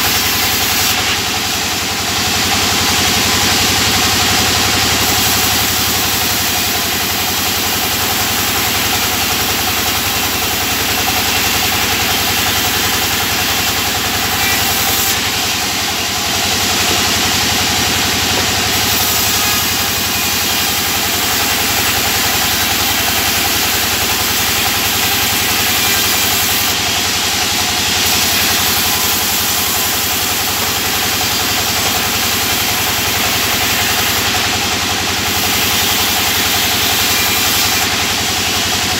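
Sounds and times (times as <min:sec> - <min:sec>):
band sawmill drone: 0:00.0 - 0:38.9
saw cutting hiss: 0:00.0 - 0:38.9.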